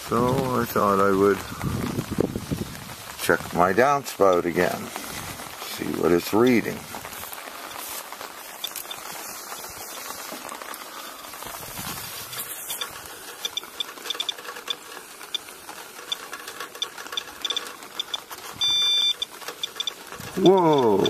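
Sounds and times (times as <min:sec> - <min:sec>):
rain falling: 0:00.0 - 0:21.0
radiation detector clicking: 0:08.5 - 0:09.7, 0:10.7 - 0:21.0
steady alarm beep: 0:18.6 - 0:20.0.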